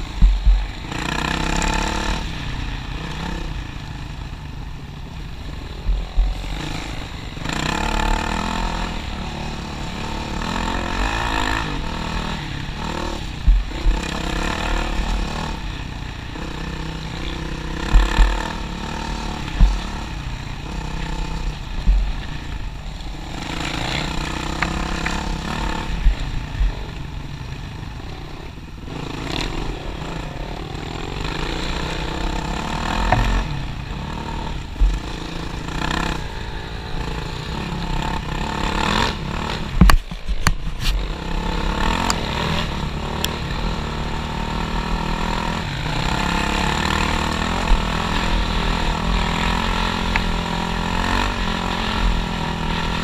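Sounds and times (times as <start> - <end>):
motorcycle engine revving: 0.0 - 53.0
knocks and clatters over bumps: 0.1 - 0.8, 39.6 - 41.0.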